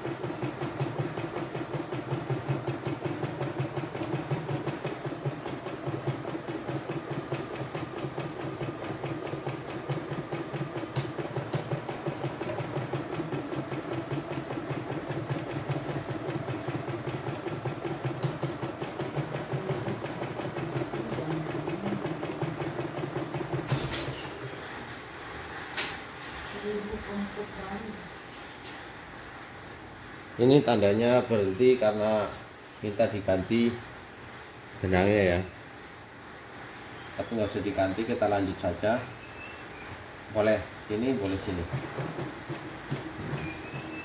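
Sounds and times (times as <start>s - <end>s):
embroidery machine stitching: 0.0s - 24.4s, 40.4s - 44.0s.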